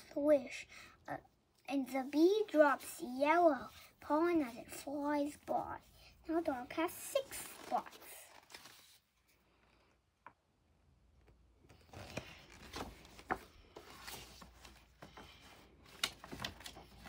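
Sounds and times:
paper rustling: 6.9s - 9.3s, 11.7s - 17.0s.

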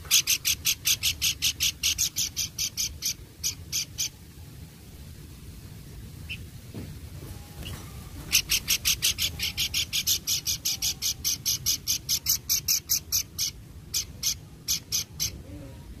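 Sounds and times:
bird chattering calls: 0.0s - 4.2s, 6.2s - 6.5s, 7.6s - 15.6s.

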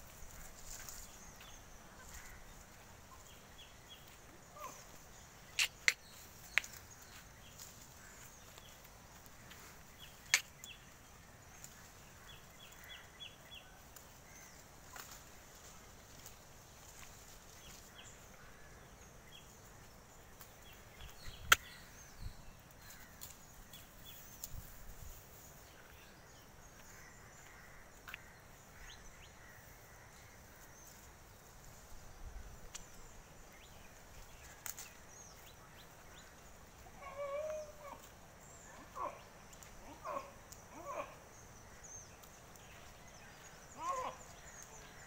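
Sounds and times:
goats rustling dry fronds: 0.0s - 12.9s, 13.8s - 21.1s, 22.7s - 25.6s, 30.5s - 37.0s.

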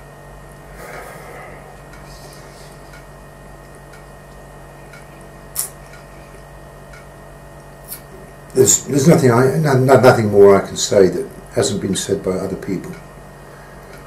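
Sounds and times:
steady low hum: 0.0s - 14.0s
sharp click: 4.9s - 6.0s.

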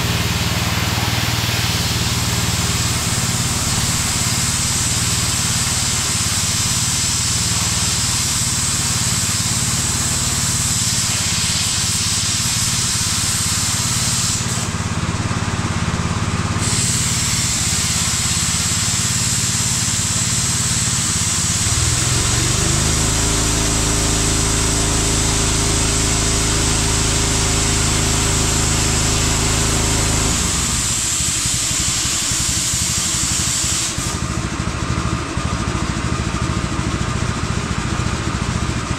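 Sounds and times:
motor humming: 0.0s - 6.4s, 21.6s - 31.3s
plasma cutter hissing: 0.0s - 34.6s.

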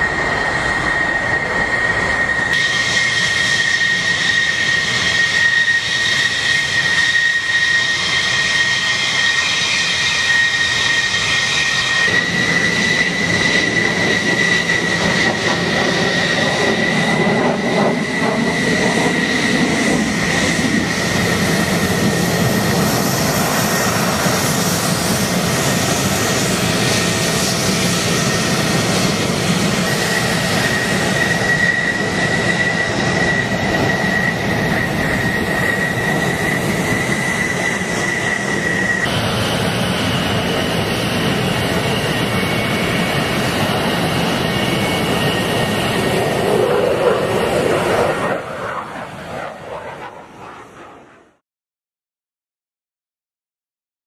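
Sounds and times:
deep full jet noise: 0.0s - 51.4s
jet engines high whine: 0.0s - 51.4s.

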